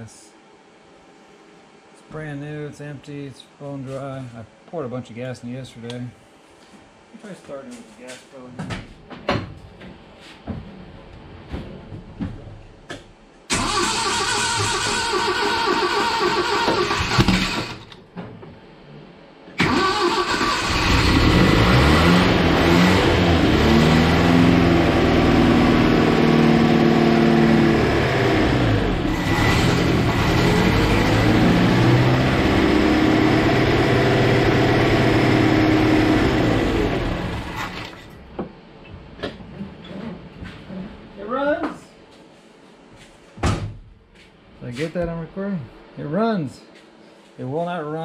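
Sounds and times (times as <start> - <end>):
car engine starting and revving: 13.5 - 17.9, 19.6 - 38.1.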